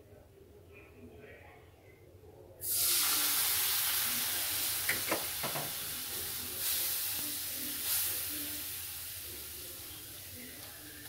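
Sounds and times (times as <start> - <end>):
milk sizzling in a hot pan: 2.6 - 11.0.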